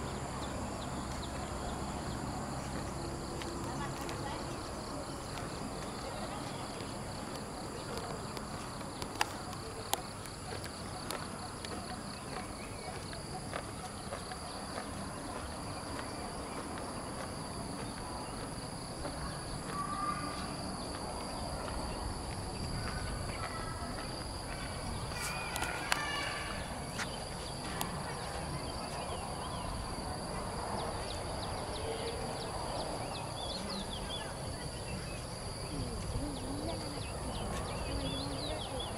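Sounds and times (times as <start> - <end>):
faint distant voices: 0.0 - 38.9
footsteps: 2.6 - 29.0.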